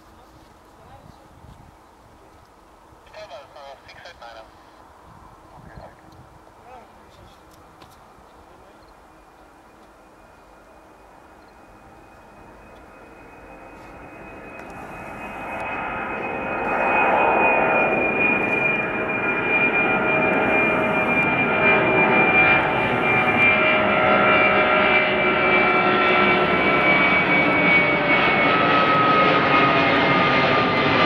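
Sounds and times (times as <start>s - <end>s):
jet engines roaring: 8.1s - 31.0s
whining engine tones dropping in pitch: 10.0s - 30.9s.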